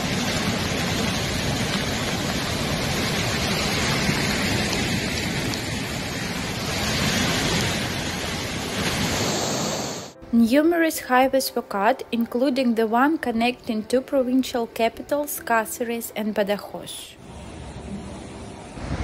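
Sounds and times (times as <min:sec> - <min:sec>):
fast-flowing floodwater: 0:00.0 - 0:10.2
heavy rain: 0:00.0 - 0:10.2, 0:17.2 - 0:19.0.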